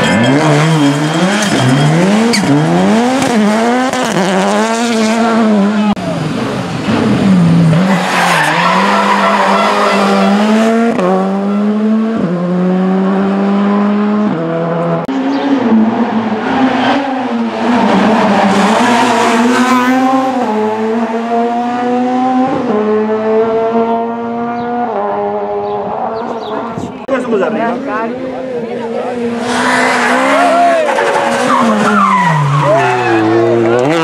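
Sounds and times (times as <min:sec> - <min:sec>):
rally car engines revving: 0:00.0 - 0:34.0.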